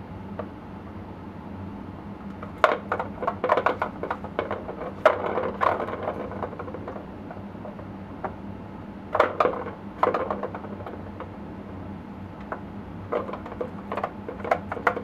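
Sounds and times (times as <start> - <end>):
plastic ball toy rattling: 2.6 - 7.0.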